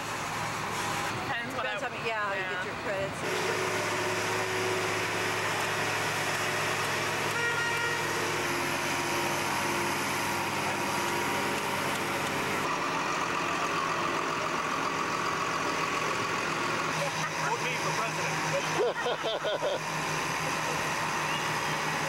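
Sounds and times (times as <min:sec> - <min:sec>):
tractor diesel engines: 0:00.0 - 0:22.0.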